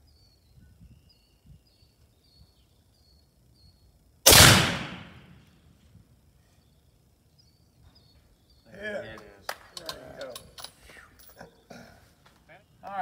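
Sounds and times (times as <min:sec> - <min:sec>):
rifle shot: 0:04.3 - 0:05.4.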